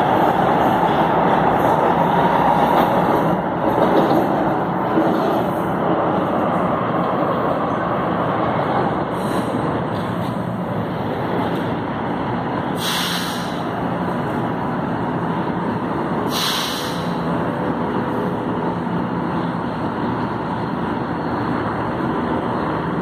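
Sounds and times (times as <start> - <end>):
train equipment running: 0.0 - 23.0
compressed air brake hisses: 9.1 - 10.1, 12.8 - 13.7, 16.3 - 17.3.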